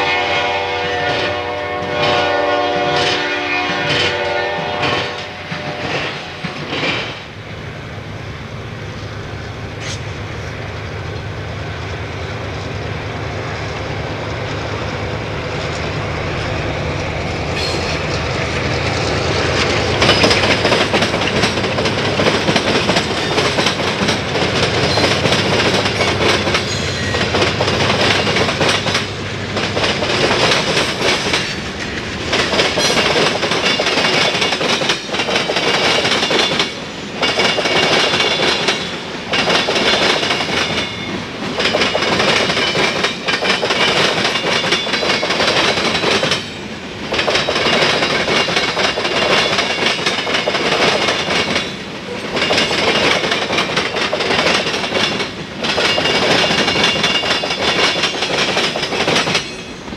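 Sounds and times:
train horn: 0.0 - 6.4
diesel locomotive drone: 0.0 - 59.9
train wheels clacking on rails: 0.8 - 7.5, 9.7 - 59.9.

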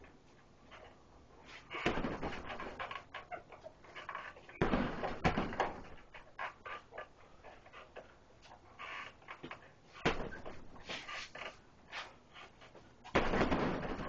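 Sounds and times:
punches on heavy punching bag: 1.8 - 2.8, 4.6 - 5.9, 10.0 - 10.6, 13.2 - 14.0.

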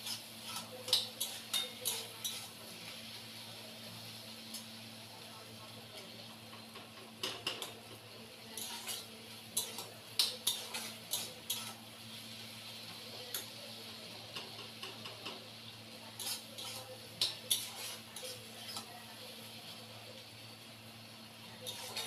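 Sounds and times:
spatula scraping a pan: 0.0 - 3.0, 8.5 - 11.8, 16.1 - 18.9, 21.6 - 22.0.

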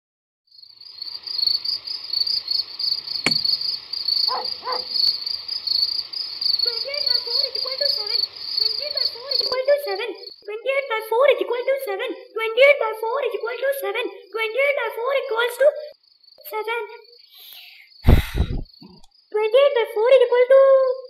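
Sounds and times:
crickets chirping: 0.5 - 21.0
sharp click: 3.2 - 3.6.

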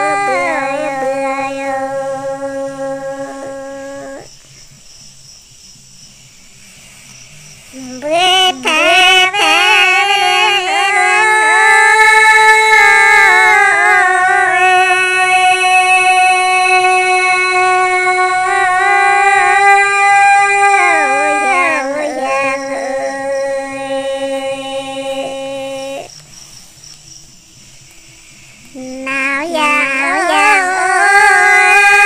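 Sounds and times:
two women singing: 8.0 - 26.1.

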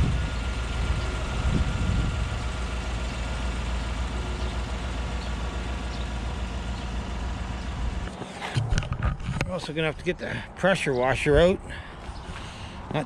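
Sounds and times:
pickup truck engine running: 0.0 - 10.4.

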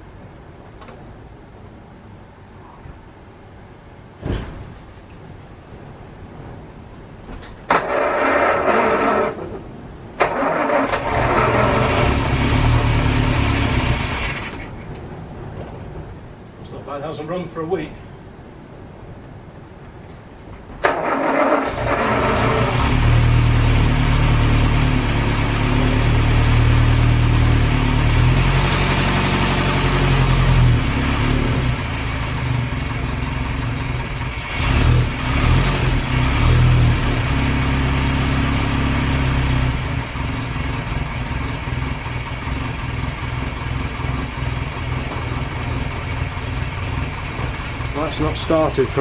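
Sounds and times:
car engine idling: 21.5 - 49.0.

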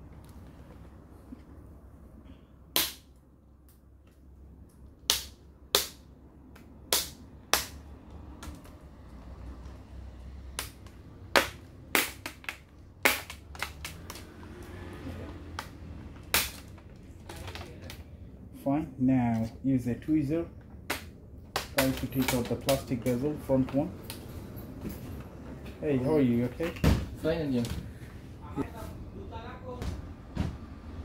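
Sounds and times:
plastic clips snapping: 10.6 - 14.3.

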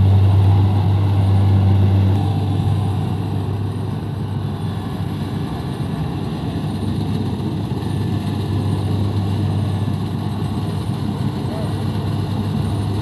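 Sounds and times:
diesel engine humming: 0.0 - 13.0.

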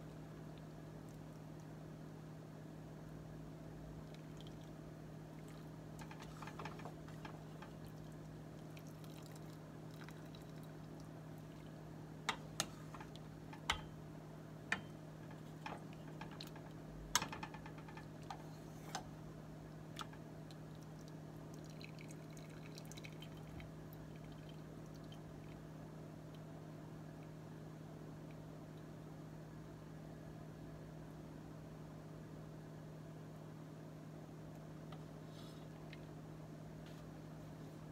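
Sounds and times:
steady low hum: 0.0 - 37.9
soup dripping and sloshing: 4.0 - 14.0, 19.7 - 25.7
spoon tapping metal pot: 12.3 - 14.0.

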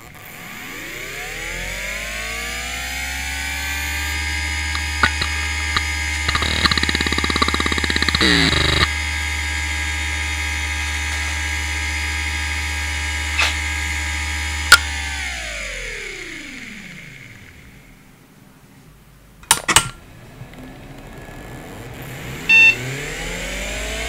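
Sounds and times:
hard drive spindle whine: 0.0 - 18.0, 20.8 - 24.0
hard drive clicks: 4.6 - 8.9.

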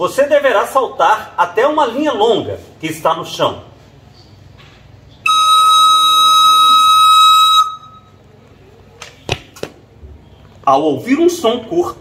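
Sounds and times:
shoes landing on tiled floor: 9.0 - 9.8.

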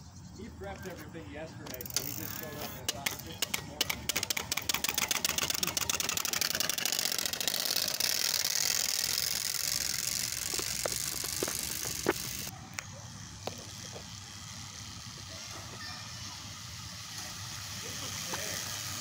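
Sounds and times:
bicycle spoke noisemaker clatter: 1.6 - 12.5, 15.2 - 19.0.

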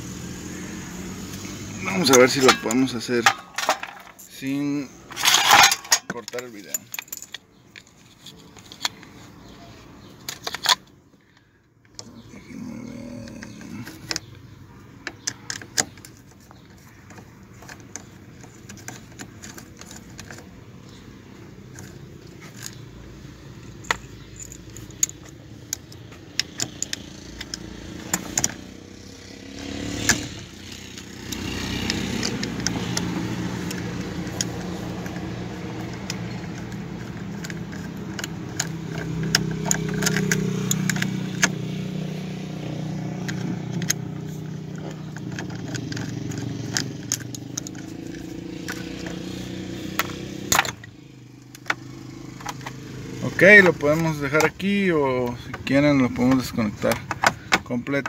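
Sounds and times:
engine hum: 0.0 - 58.0.

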